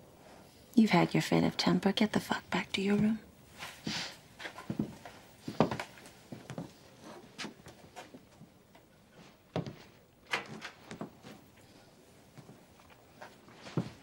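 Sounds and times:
footsteps on wooden floorboards: 2.9s - 8.5s, 9.2s - 11.4s, 12.4s - 12.6s, 13.2s - 14.0s.

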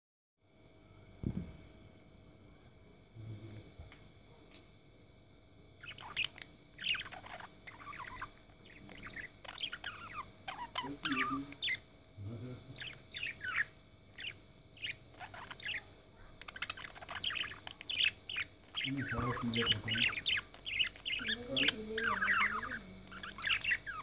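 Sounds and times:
budgerigars chirping: 5.8s - 11.9s, 12.7s - 24.0s.

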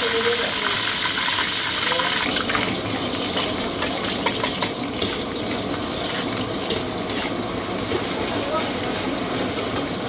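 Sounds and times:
food sizzling in a pan: 0.0s - 10.0s
sharp stirring clacks: 2.5s - 8.0s.

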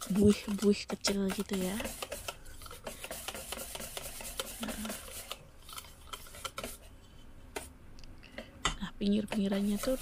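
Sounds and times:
whisk clicking against metal bowl: 0.0s - 5.4s, 6.1s - 6.8s.

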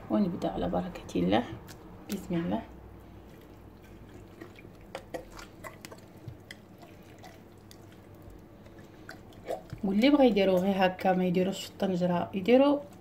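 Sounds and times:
wet squelches of hand rubbing meat: 1.6s - 11.1s.

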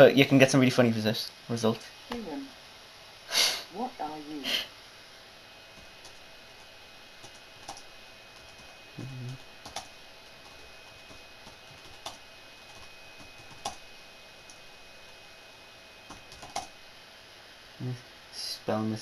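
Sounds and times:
short low hum: 4.4s - 18.5s
computer keyboard typing: 5.8s - 14.6s, 16.1s - 16.8s.

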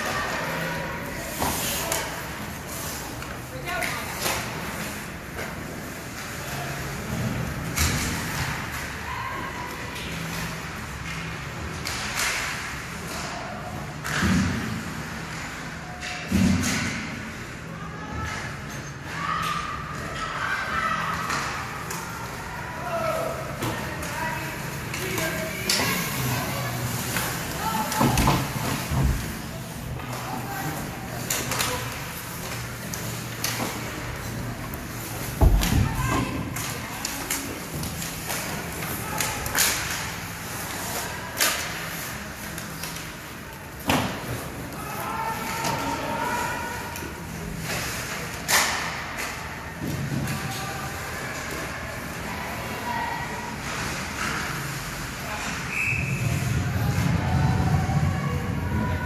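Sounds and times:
hockey sticks and puck clacking: 0.0s - 9.0s, 9.7s - 17.6s, 23.1s - 52.7s
spectators' voices: 0.0s - 59.0s.

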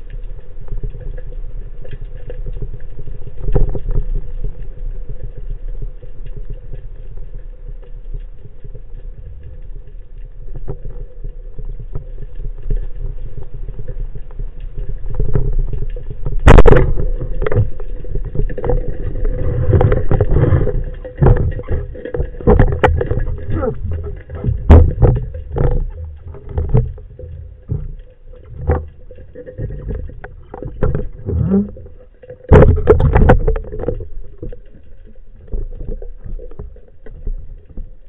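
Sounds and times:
underwater rumble: 0.0s - 38.0s
knocks and rustling: 18.3s - 34.6s.

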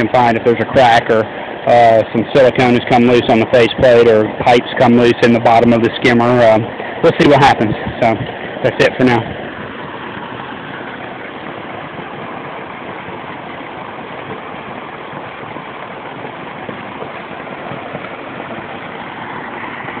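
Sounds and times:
waterfall splashing into pond: 0.0s - 20.0s.

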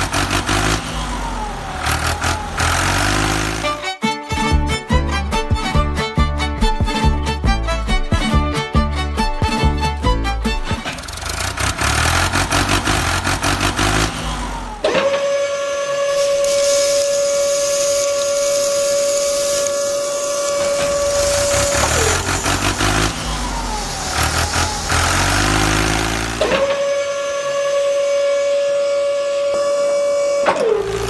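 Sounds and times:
small electric motor whining: 16.1s - 26.8s.

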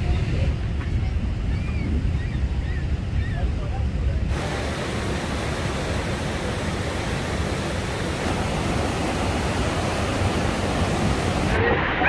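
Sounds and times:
waterfall rushing: 4.3s - 12.0s.

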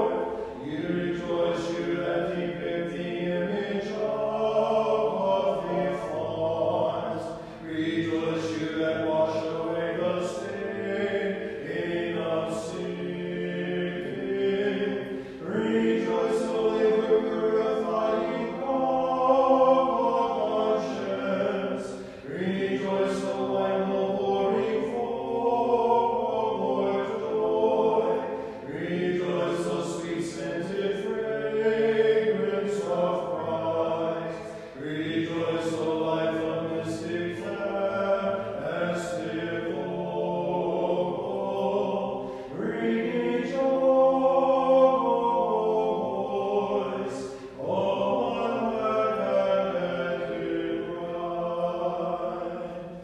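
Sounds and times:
a cappella choral chant: 0.0s - 53.0s.

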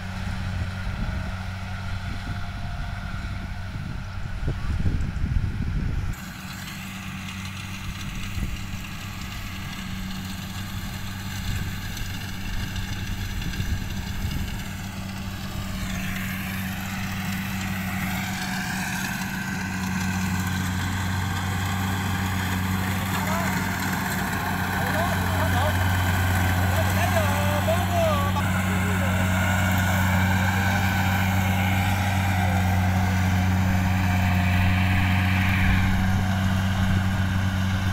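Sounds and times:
combine harvester engine running: 0.0s - 37.9s
wind buffeting microphone: 0.3s - 6.2s, 7.9s - 8.8s, 11.4s - 17.5s, 31.2s - 37.9s.

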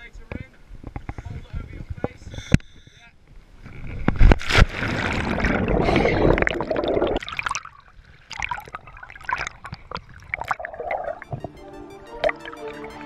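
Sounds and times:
sharp water splash: 4.2s - 11.3s
churning water and bubbles: 4.5s - 11.5s
bubbles popping underwater: 4.9s - 11.6s.

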